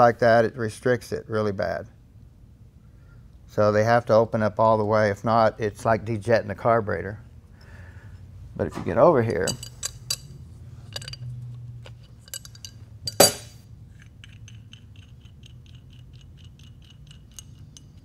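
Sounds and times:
fingers clicking metal parts: 0:09.4 - 0:10.3, 0:10.9 - 0:18.0
sharp metal clink: 0:09.4 - 0:10.3, 0:12.3 - 0:13.6.

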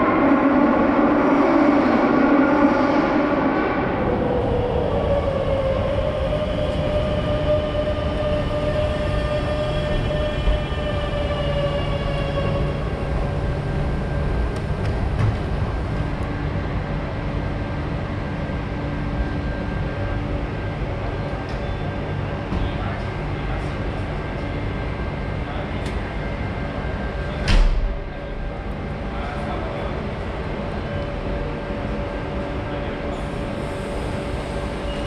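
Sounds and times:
train wheels rumbling on rail: 0:00.0 - 0:35.0
train electric whine: 0:02.5 - 0:22.3, 0:30.0 - 0:35.0.

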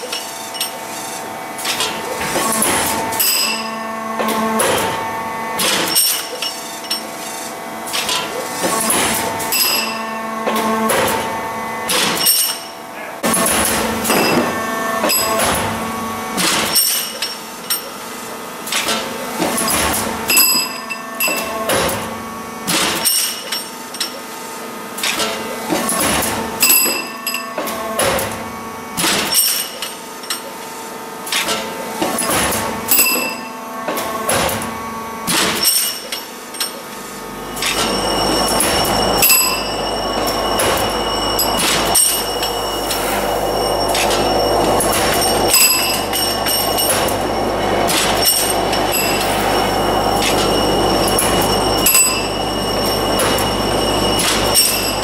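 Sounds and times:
machine hum: 0:37.2 - 0:55.0
metal tubes clanking: 0:37.6 - 0:55.0.

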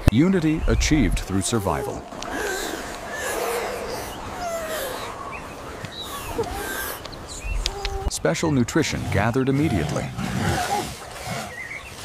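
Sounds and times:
chirping animal calls: 0:00.7 - 0:08.2.

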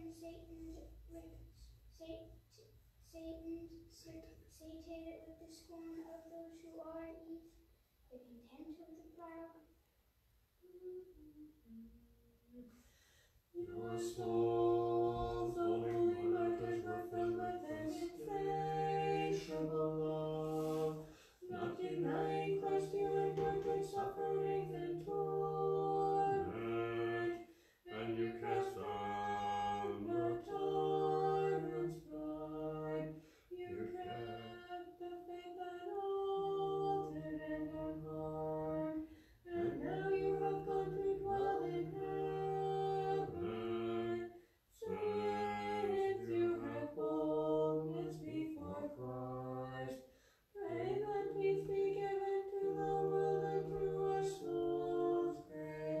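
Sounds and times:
choir singing a hymn: 0:13.5 - 0:50.0, 0:50.6 - 0:56.0.

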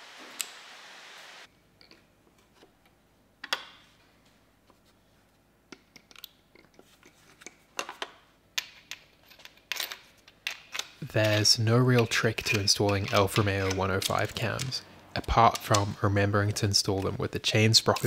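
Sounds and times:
metal parts clicking and clinking: 0:05.9 - 0:16.0.

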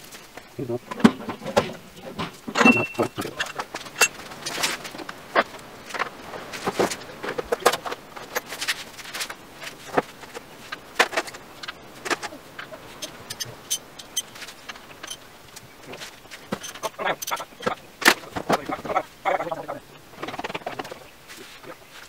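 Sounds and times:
hand tools clinking on metal: 0:02.5 - 0:04.9, 0:06.7 - 0:17.8.

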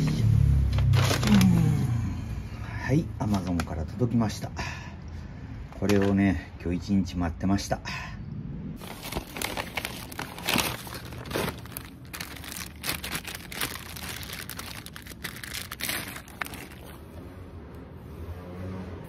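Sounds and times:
paper and plastic crinkling: 0:00.8 - 0:01.6, 0:08.8 - 0:17.2.

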